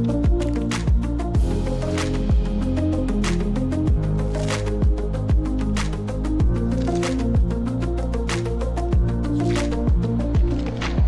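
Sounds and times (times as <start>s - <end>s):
kick drum and snare beat: 0.2s - 1.6s, 2.2s - 2.5s, 3.9s - 4.1s, 4.8s - 5.5s, 9.9s - 10.6s.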